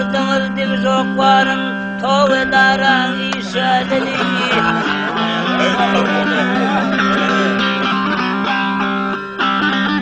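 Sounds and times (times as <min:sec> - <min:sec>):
solo long-necked lute playing: 0:02.6 - 0:10.0.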